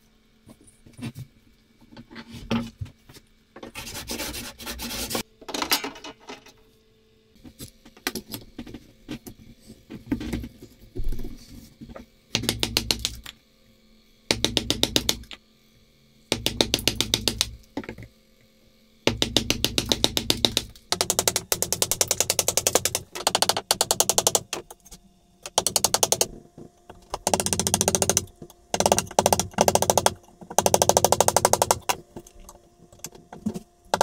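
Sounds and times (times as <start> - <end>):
chisel rapid ticking: 27.2 - 32.0.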